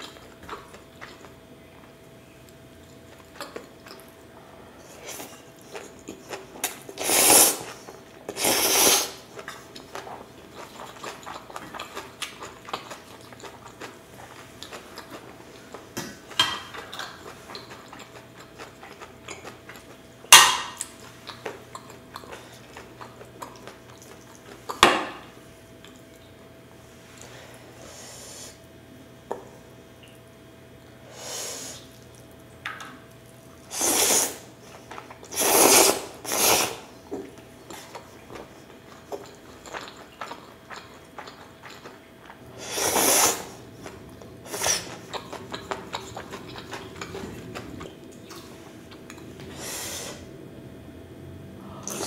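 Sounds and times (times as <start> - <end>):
noodle slurping: 6.9 - 9.3, 33.6 - 34.6, 35.2 - 36.9, 42.5 - 47.9
wet chewing clicks: 20.8 - 24.8, 37.3 - 42.5, 43.8 - 49.4.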